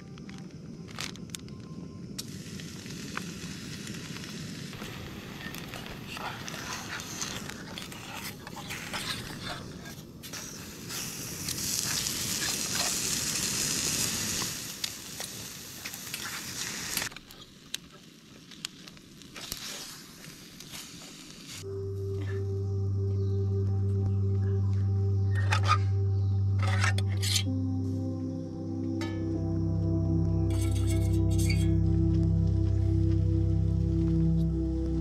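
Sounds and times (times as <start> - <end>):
steak sizzling in pan: 10.4 - 17.1.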